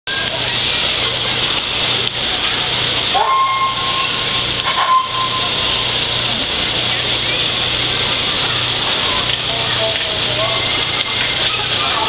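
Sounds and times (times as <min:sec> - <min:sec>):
train horn: 0:03.1 - 0:05.9.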